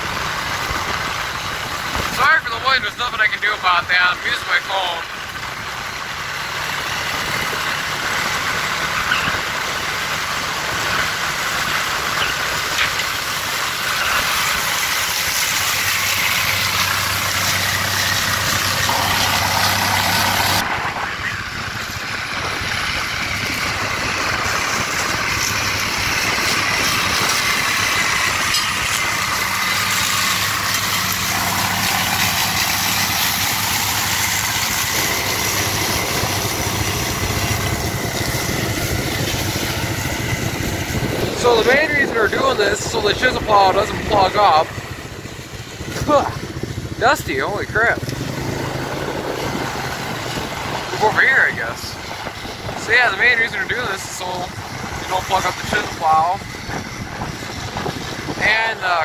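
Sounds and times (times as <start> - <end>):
stalk shredder through cornstalks: 0.0 - 59.0
tractor diesel engine running: 0.0 - 59.0
wind buffeting microphone: 20.3 - 29.8, 34.5 - 59.0.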